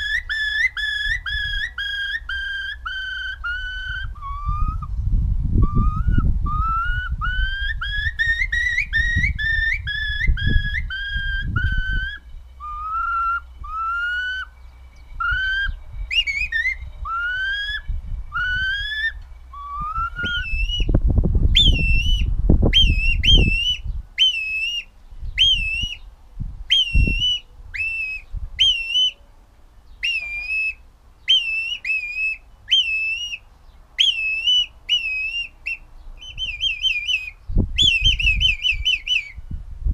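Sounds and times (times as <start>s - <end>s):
finger whistling bird calls: 0.0s - 5.0s, 5.6s - 26.1s, 26.7s - 29.2s, 29.9s - 39.5s
low rumble: 4.6s - 7.2s, 17.8s - 22.8s.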